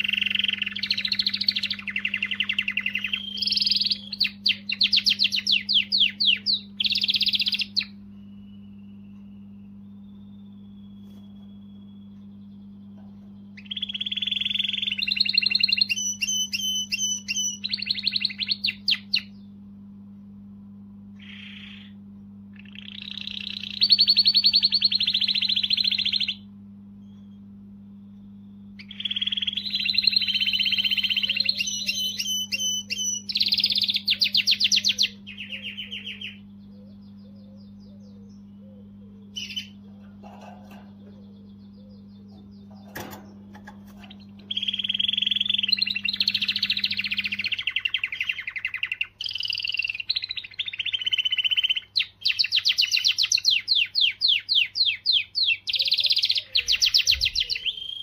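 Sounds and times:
canary singing trills: 0.0s - 19.7s, 21.0s - 58.0s
steady low hum: 0.0s - 58.0s.

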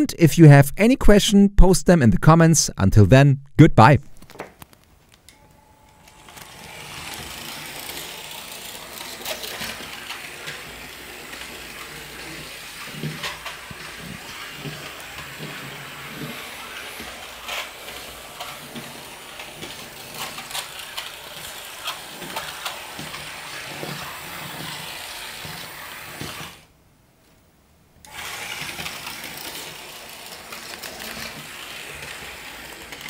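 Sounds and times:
model train motor whirring: 6.0s - 26.7s, 28.0s - 33.0s.

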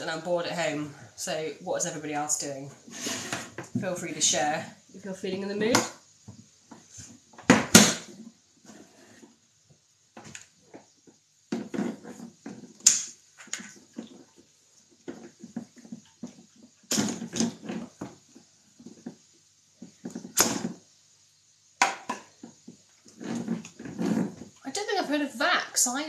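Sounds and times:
plastic parts knocking and rustling: 10.2s - 20.9s.

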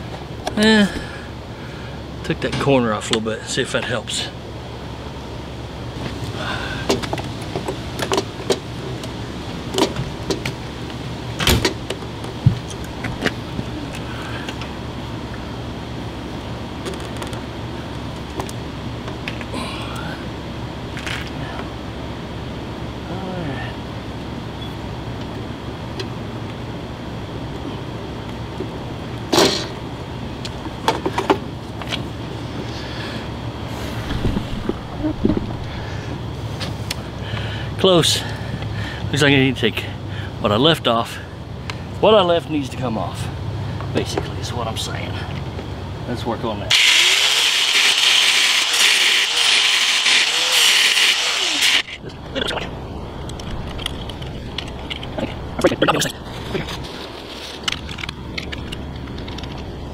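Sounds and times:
low background hum: 0.0s - 46.8s, 51.8s - 59.9s
low hum: 31.4s - 39.0s, 51.8s - 59.9s.

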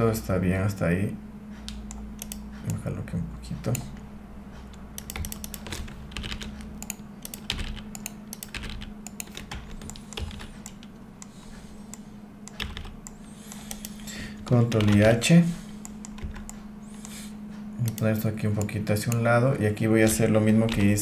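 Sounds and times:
low steady hum: 0.0s - 21.0s
keyboard and mouse clicking: 1.7s - 2.8s, 4.7s - 15.2s, 15.8s - 17.2s, 20.0s - 21.0s.

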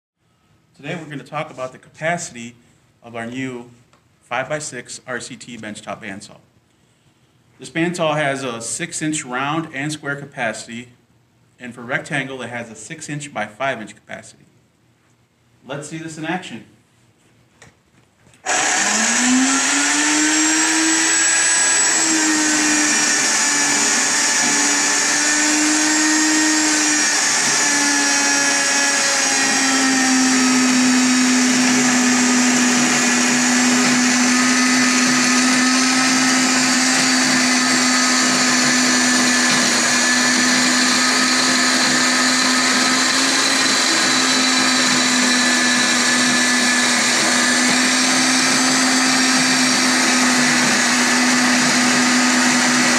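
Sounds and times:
bandsaw cutting metal tube: 18.4s - 52.9s.

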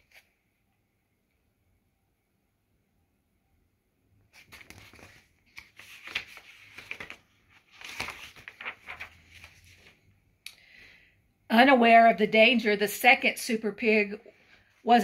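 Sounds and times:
paper pages rustling: 0.0s - 0.3s, 4.3s - 10.1s.

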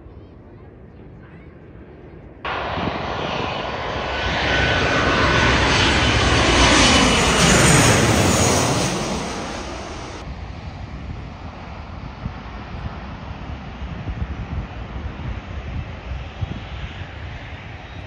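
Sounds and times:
faint engine whine: 2.5s - 10.2s
jet airliner passing overhead: 2.5s - 18.0s.

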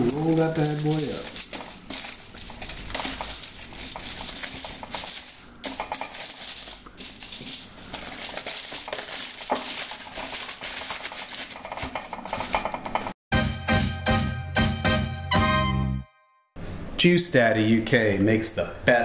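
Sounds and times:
aluminium foil crinkling: 0.0s - 13.0s
background music: 13.3s - 16.5s.

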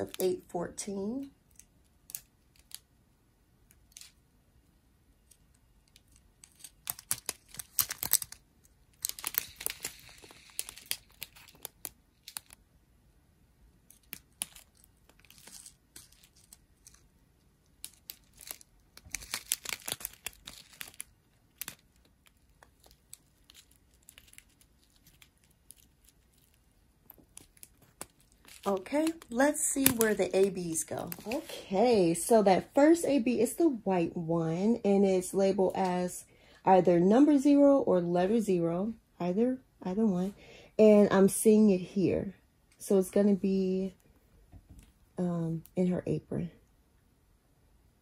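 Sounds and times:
plastic bags crinkling: 5.9s - 12.6s, 13.9s - 31.7s.

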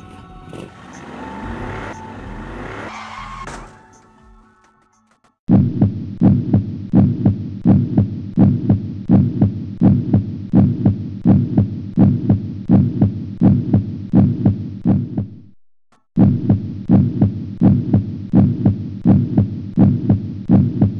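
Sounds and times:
heartbeat thumps: 5.5s - 15.4s, 16.2s - 20.9s.

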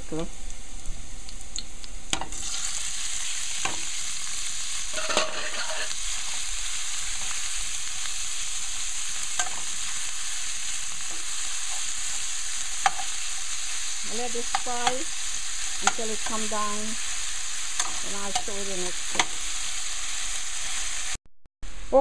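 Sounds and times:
fish sizzling in hot oil: 0.0s - 21.2s
fork clicking against pan: 9.4s - 9.6s, 12.8s - 13.1s, 17.8s - 18.5s.

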